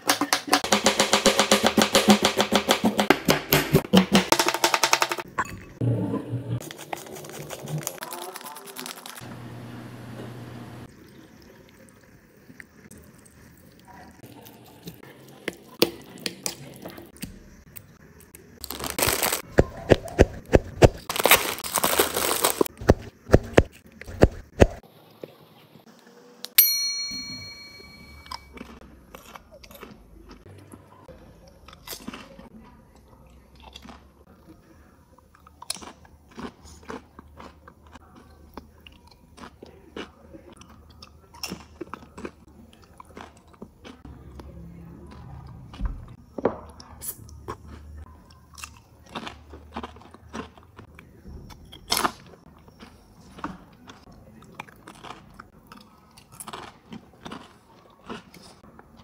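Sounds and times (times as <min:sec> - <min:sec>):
chips crunching: 0:06.6 - 0:09.4, 0:18.6 - 0:24.2, 0:48.5 - 0:50.8, 0:54.5 - 0:58.5
bright ringing chime: 0:26.6 - 0:28.5.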